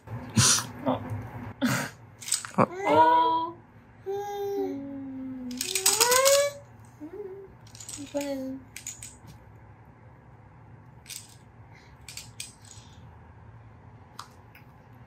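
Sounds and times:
plastic baby rattle shaken: 2.2 - 2.6, 5.5 - 6.6, 7.7 - 9.2, 11.1 - 11.4, 12.0 - 12.8.

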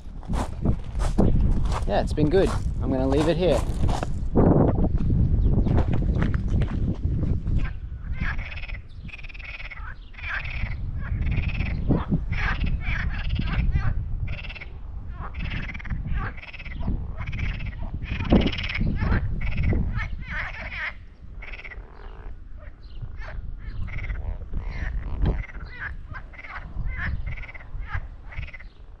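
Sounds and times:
frogs croaking: 7.6 - 29.0.

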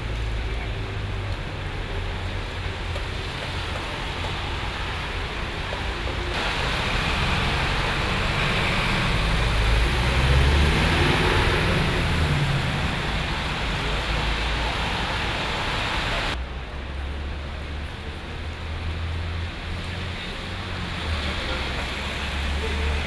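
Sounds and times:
rain hissing on street: 0.0 - 23.0
vehicle passing on wet road: 0.0 - 23.0
rain falling into puddle: 5.6 - 16.4.

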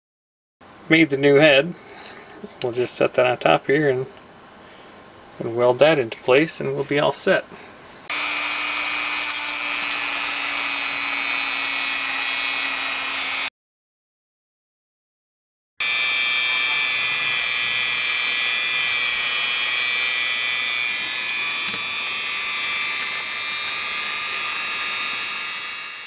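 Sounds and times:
rotary tool whining: 8.1 - 13.5, 15.8 - 26.0.

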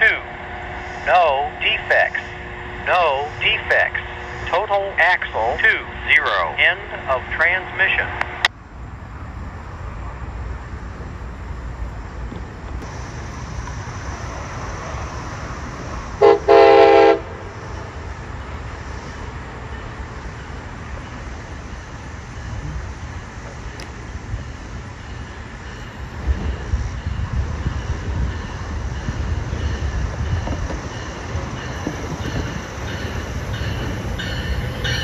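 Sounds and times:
locomotive horn blast: 16.2 - 17.5.

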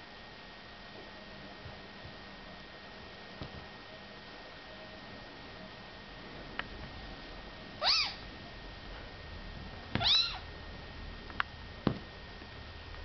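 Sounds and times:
kittens mewing: 7.8 - 8.2, 10.0 - 10.4.

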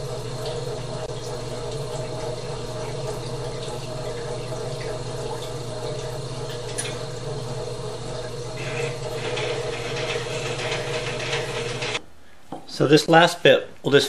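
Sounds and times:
grinder motor humming: 0.0 - 12.0.

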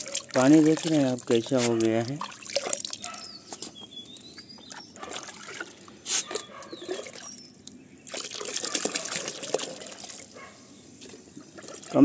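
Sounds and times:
water pouring into a bucket: 0.0 - 3.0, 8.0 - 10.4, 11.1 - 12.0
water splashing in a bucket: 0.0 - 3.1, 5.0 - 5.9, 8.0 - 10.4, 11.0 - 12.0.

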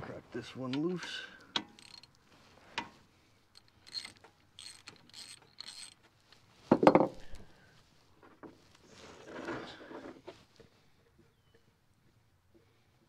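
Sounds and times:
ratchet wrench ratcheting: 1.5 - 2.2, 3.5 - 6.0.

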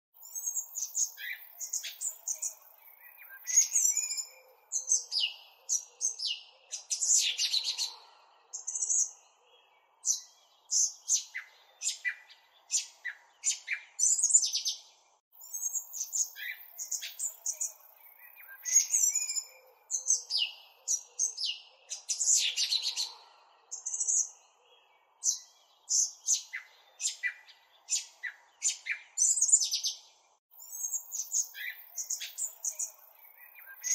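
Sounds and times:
birds chirping and singing: 0.2 - 33.9.

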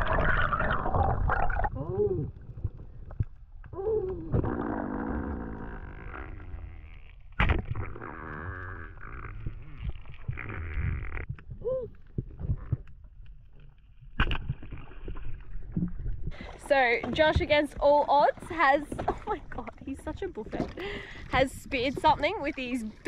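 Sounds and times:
muffled underwater rushing and gurgling: 0.0 - 3.6.

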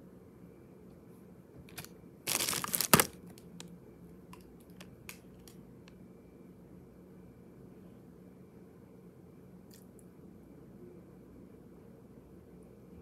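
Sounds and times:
plastic crinkling: 1.7 - 3.7.

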